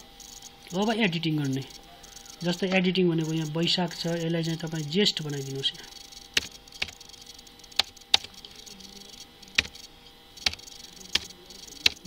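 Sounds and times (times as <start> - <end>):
keyboard keys clicking: 6.3 - 9.8, 10.4 - 12.0.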